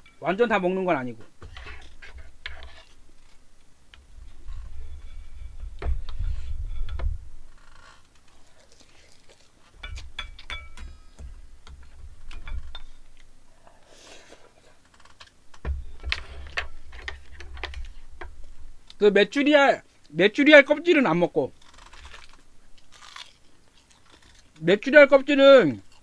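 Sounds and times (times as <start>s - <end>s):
wooden spoon scraping metal bowl: 1.3s - 3.4s, 4.2s - 7.0s.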